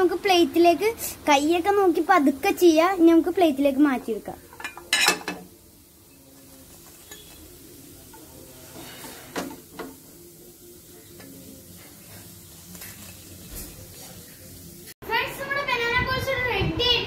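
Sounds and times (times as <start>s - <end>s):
hot oil sizzling: 0.0s - 15.9s
utensils clinking and scraping: 4.5s - 5.5s, 6.8s - 7.4s.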